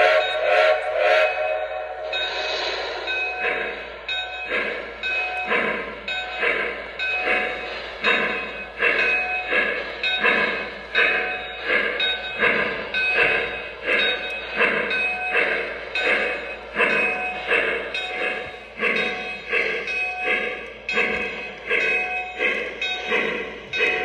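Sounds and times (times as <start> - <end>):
model steam locomotive chuffing: 0.0 - 24.0.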